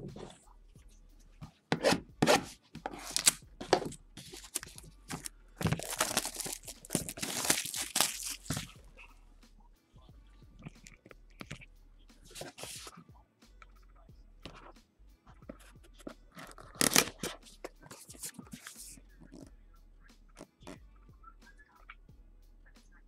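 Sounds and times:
plastic shrink wrap tearing: 3.0 - 8.8, 16.4 - 17.3.

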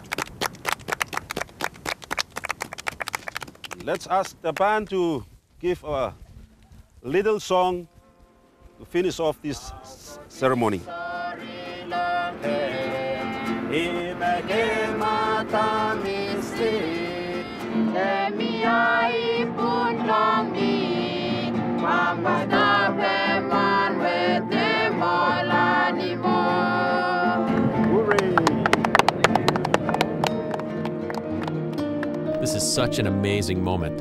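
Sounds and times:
voices singing together: 9.7 - 28.0
plucked guitar: 10.9 - 34.0.

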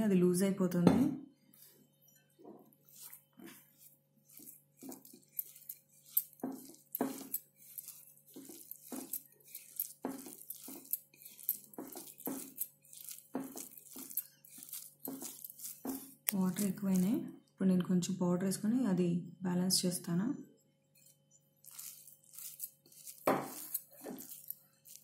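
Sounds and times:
fingers squishing wet paste: 2.8 - 17.2, 21.6 - 25.0.

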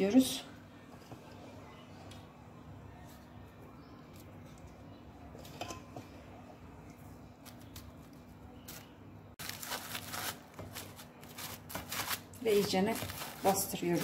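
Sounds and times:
plastic wrap crinkling: 7.4 - 14.0.

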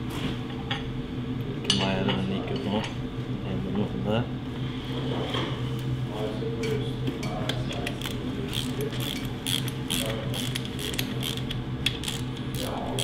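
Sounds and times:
steady low hum: 0.0 - 13.0
ratchet wrench clicking: 8.0 - 13.0.

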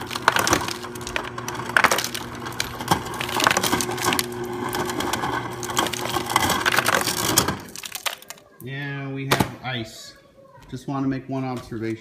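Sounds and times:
dispenser motor hum: 0.0 - 8.4
ice cubes clattering into cup: 0.0 - 8.5.

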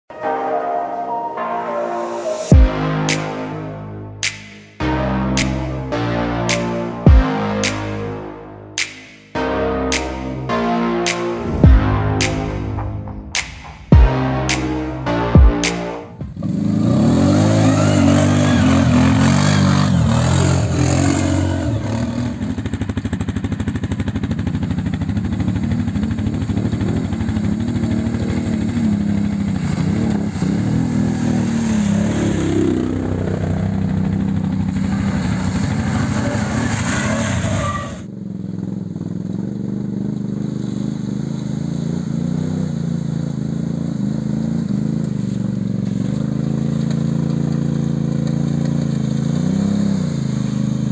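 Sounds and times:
atv engines revving: 16.2 - 50.9.

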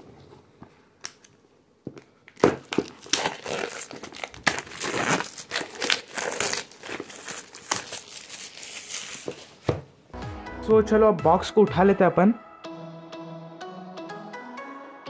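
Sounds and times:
plastic wrap crinkling: 2.0 - 9.7.

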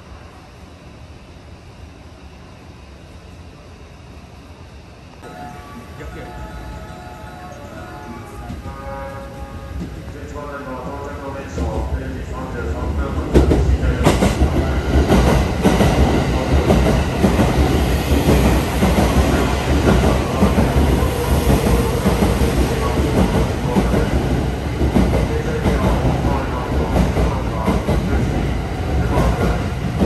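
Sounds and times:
train wheels rumbling on rails: 8.0 - 30.0.

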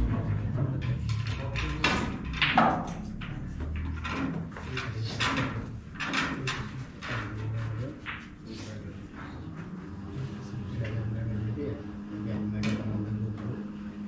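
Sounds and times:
snooker balls clicking: 0.0 - 8.4.

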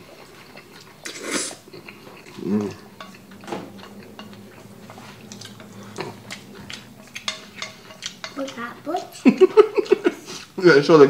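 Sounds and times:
chopsticks stirring noodles: 0.0 - 10.9
chopsticks scraping metal bowl: 0.8 - 9.2.

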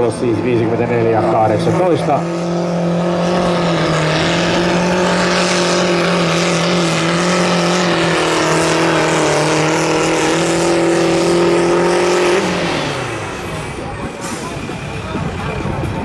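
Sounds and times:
tractor diesel engine at high revs: 0.0 - 16.0.

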